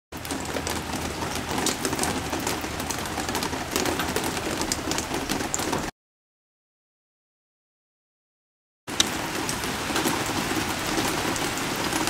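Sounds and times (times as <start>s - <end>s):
heavy rain pouring: 0.1s - 5.9s, 8.9s - 12.0s
raindrops hitting a deck: 0.1s - 5.9s, 8.9s - 12.0s.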